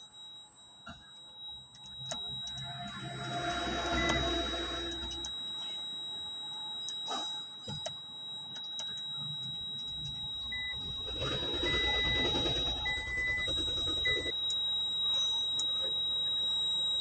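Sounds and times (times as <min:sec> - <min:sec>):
high electronic whine: 0:00.8 - 0:07.8, 0:08.8 - 0:17.0
short high beeps: 0:01.0 - 0:05.9.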